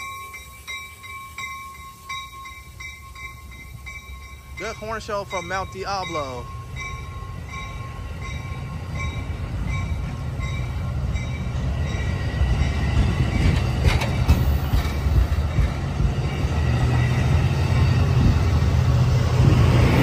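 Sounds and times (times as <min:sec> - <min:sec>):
bell ringing fast: 0:00.0 - 0:10.6
train wheels rumbling on rail: 0:00.0 - 0:20.0.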